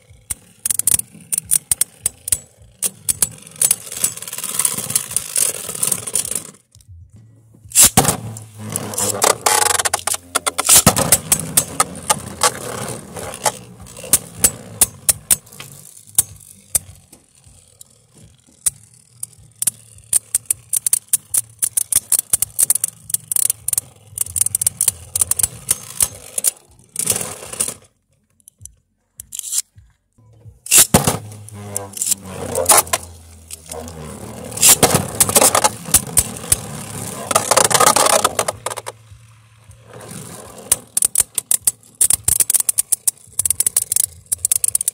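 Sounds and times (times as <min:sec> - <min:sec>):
spinning tops scraping plastic: 0:00.0 - 0:06.8, 0:07.7 - 0:28.0, 0:29.2 - 0:29.7, 0:30.6 - 0:44.9
spinning tops clashing: 0:07.7 - 0:12.5, 0:30.7 - 0:38.9.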